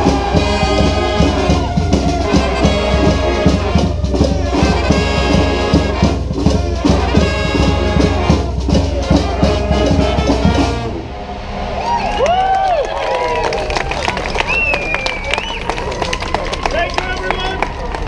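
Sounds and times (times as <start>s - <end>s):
marching snare drum: 0.0s - 10.9s
sousaphone: 0.0s - 10.9s
bass drum: 0.0s - 11.0s
saxophones: 0.0s - 12.2s
trumpets: 0.0s - 12.4s.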